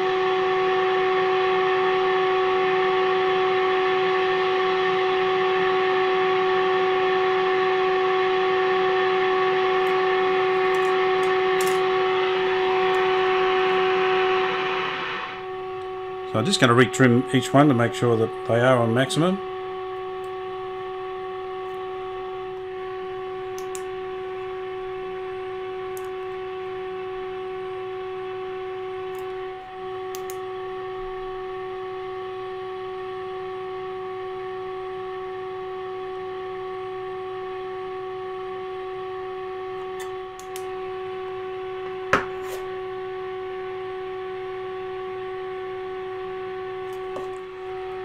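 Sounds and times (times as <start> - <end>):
radio test tone: 2.2 - 29.5, 39.6 - 43.6, 45.0 - 48.0
sharp click: 30.1 - 30.4.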